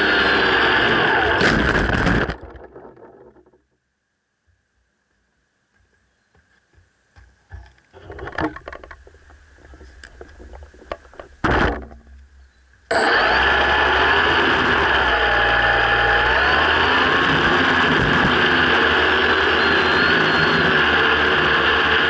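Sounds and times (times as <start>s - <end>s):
drone motors and propellers: 0.0s - 3.6s, 12.9s - 22.0s
handling clicks and knocks: 7.2s - 12.2s.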